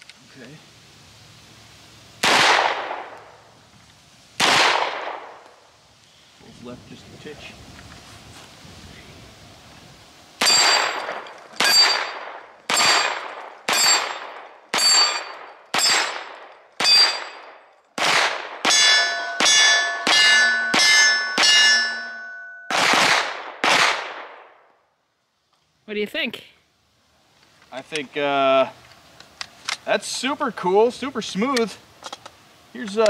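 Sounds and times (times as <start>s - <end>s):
gunshots: 2.2s - 3.2s, 4.4s - 5.4s, 10.4s - 21.8s, 22.7s - 24.6s
steel targets ringing: 10.4s - 17.6s, 18.6s - 22.9s.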